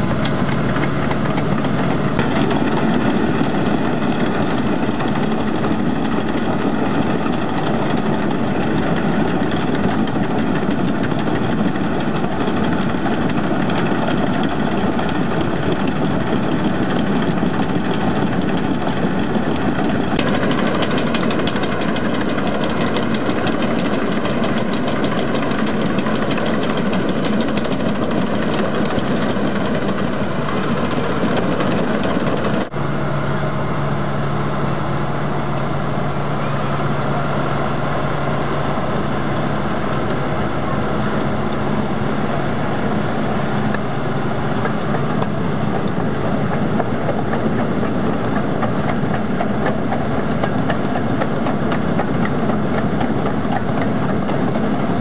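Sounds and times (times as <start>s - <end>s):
fast even clatter: 0.0s - 32.8s, 44.6s - 55.0s
diesel engine running under load: 0.0s - 55.0s.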